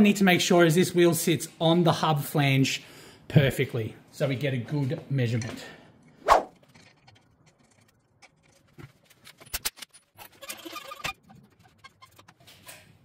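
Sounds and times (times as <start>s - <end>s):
wheel nuts and tools rattling: 5.4s - 13.0s.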